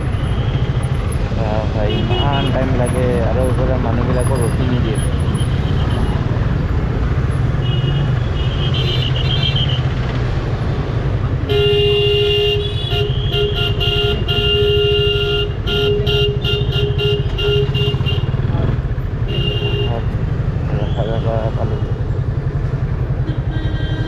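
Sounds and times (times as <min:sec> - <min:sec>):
vehicle horn honking: 0:11.5 - 0:18.4, 0:19.3 - 0:20.1, 0:23.2 - 0:24.0.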